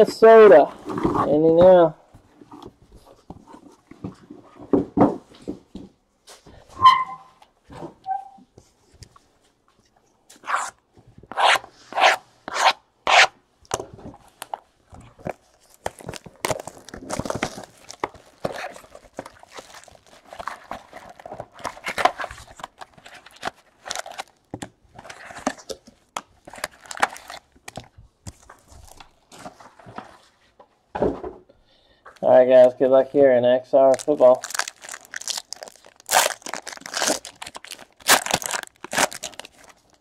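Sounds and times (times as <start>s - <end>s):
sharp scraping rubs on cardboard: 10.4s - 13.3s
plastic wrap rustling and crinkling: 14.0s - 30.4s, 33.8s - 40.0s.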